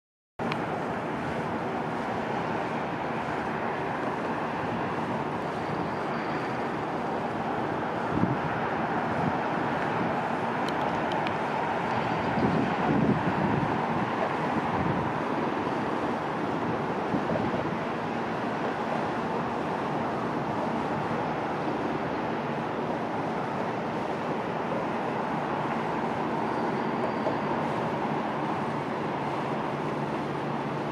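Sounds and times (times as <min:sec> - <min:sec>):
distant traffic rumble: 0:00.4 - 0:30.9.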